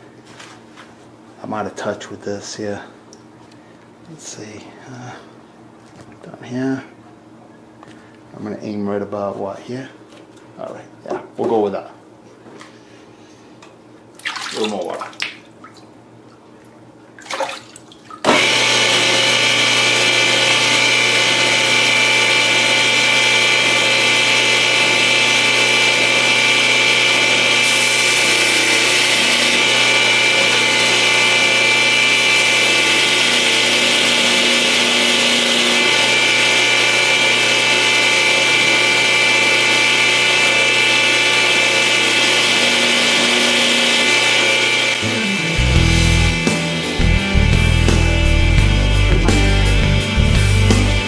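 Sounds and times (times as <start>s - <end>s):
belt grinder whining: 18.2s - 51.0s.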